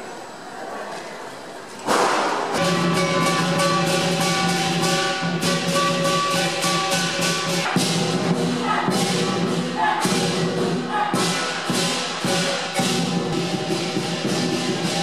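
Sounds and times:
ringing gong: 2.6s - 8.0s
clashing cymbals: 2.6s - 15.0s
drum beat: 2.6s - 15.0s.

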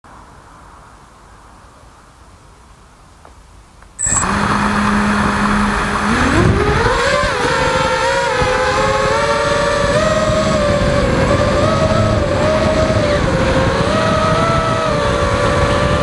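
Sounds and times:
quadcopter motors whining: 4.0s - 16.0s.

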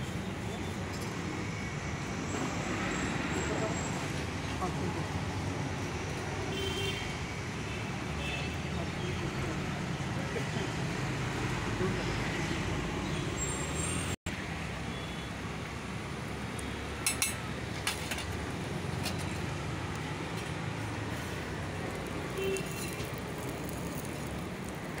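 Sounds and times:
low rumble of street traffic: 0.0s - 25.0s
sharp crackles of frying: 14.8s - 25.0s
omelette sizzling in oil: 18.4s - 25.0s.

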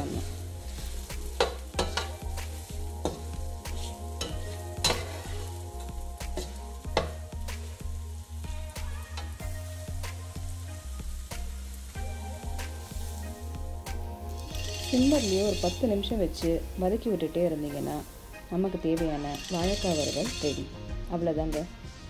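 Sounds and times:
spatula scraping frying pan: 0.0s - 7.2s, 14.3s - 16.1s, 19.0s - 20.7s
food sizzling in oil: 0.0s - 22.0s.

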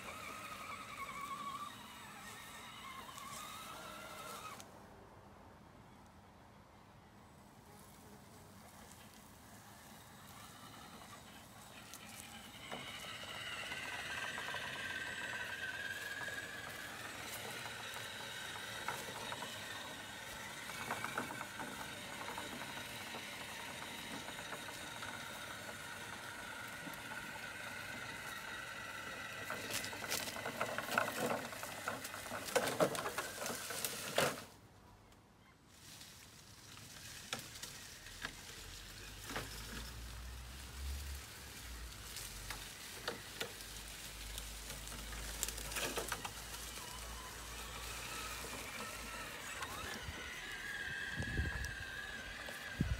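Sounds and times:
toy truck electric motor whining: 0.0s - 4.6s, 9.1s - 34.6s, 36.6s - 52.9s
crackling and rustling: 29.4s - 34.6s, 35.7s - 52.9s.

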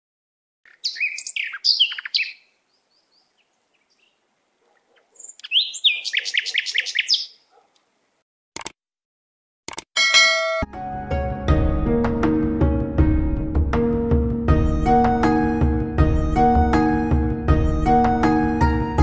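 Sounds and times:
songbird whistling notes: 0.7s - 4.2s, 5.2s - 7.4s.

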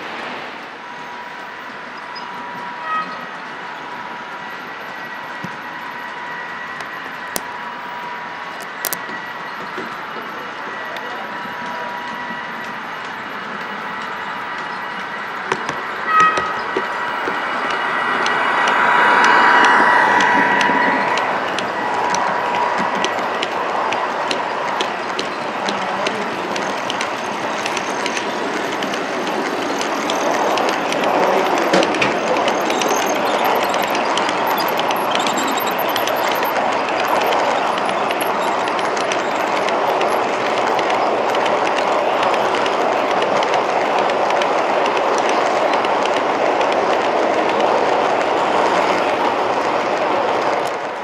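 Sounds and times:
wheels clicking over rail joints: 8.6s - 51.0s
model train wagons rattling: 21.5s - 51.0s.

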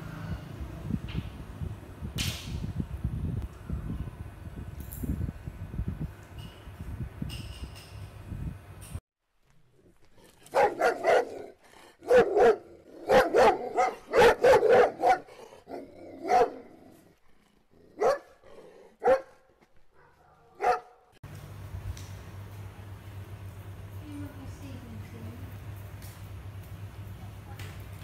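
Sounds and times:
dog barking: 10.5s - 16.9s, 18.0s - 21.1s.

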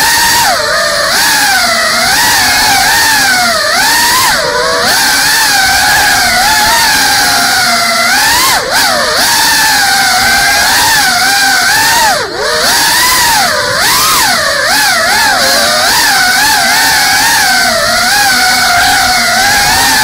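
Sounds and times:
drone motors whining: 0.0s - 20.0s.

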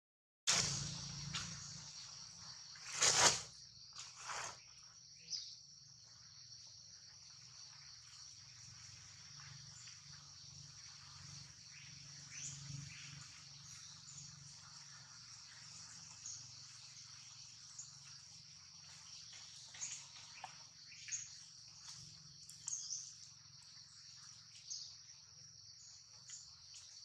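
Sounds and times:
insects droning: 0.5s - 27.0s.

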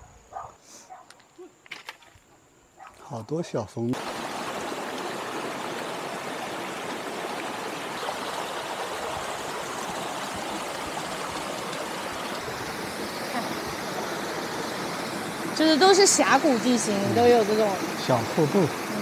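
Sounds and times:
stream rushing over boulders: 3.9s - 19.0s.

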